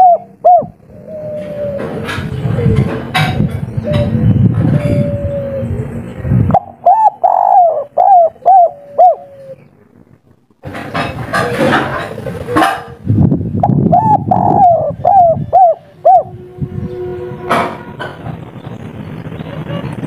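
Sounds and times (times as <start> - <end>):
dove cooing: 0.0 - 9.8, 11.3 - 13.0, 13.6 - 16.5
rushing noise: 0.0 - 20.0.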